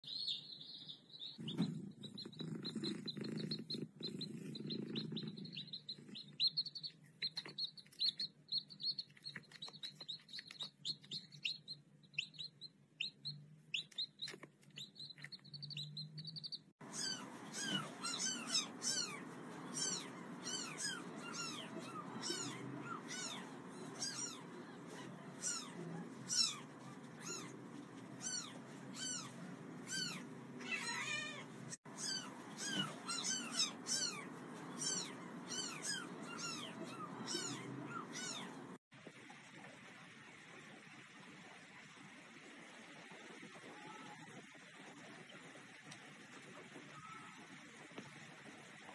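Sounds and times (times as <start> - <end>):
ducklings peeping: 0.0 - 31.2, 31.9 - 38.8
chicks cheeping: 0.0 - 38.8.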